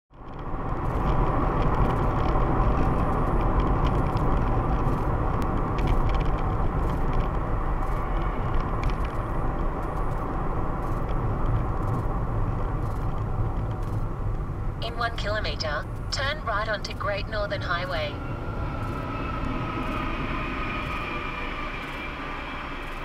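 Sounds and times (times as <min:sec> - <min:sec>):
tyres rumbling on road: 0:00.1 - 0:23.0
faint ticks: 0:00.2 - 0:14.4.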